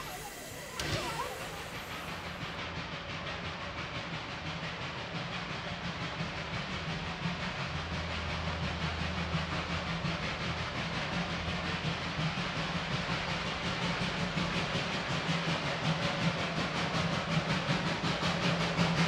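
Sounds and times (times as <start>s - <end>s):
low drone: 0.0s - 2.5s
hiss of steam: 0.0s - 2.7s
steam locomotive exhaust beats: 0.0s - 19.0s.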